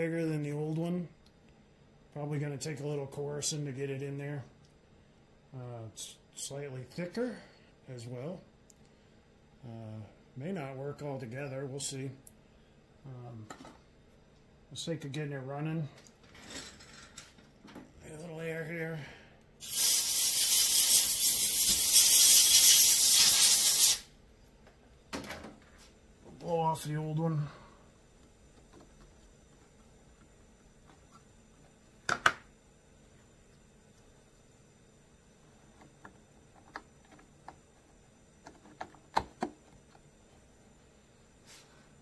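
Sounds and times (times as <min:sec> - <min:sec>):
air blowgun hissing: 0:19.6 - 0:24.1.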